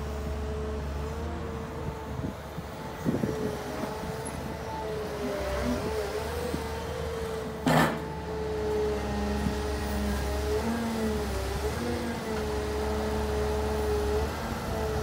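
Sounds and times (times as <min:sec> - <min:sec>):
excavator diesel engine humming: 0:00.0 - 0:15.0
sharp metallic clunk: 0:07.6 - 0:08.1.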